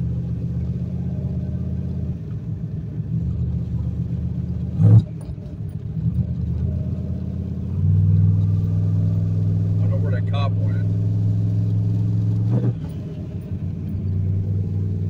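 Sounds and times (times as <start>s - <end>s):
car engine drone: 0.0s - 15.0s.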